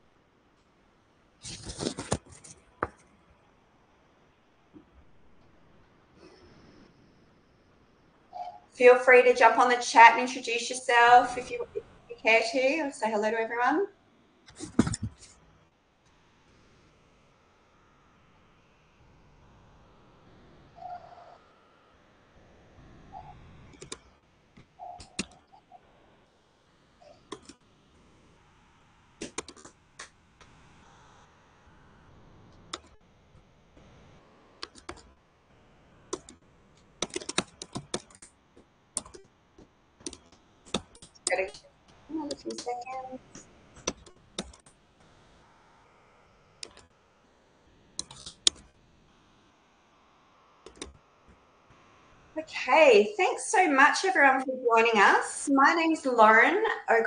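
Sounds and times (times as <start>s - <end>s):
keyboard keys clicking: 23.7s - 24.0s, 34.6s - 35.0s, 37.0s - 38.3s, 39.0s - 39.2s, 43.8s - 44.7s, 48.0s - 48.6s, 50.7s - 50.9s.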